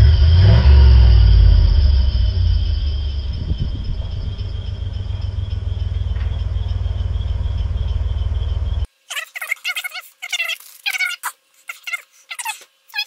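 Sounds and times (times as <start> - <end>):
pickup engine idling: 0.0 - 8.9.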